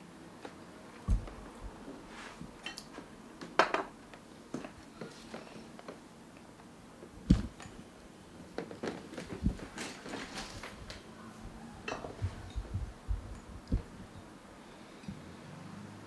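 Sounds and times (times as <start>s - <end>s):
soft low thumps: 1.1s - 1.8s, 7.3s - 7.6s, 12.2s - 14.2s.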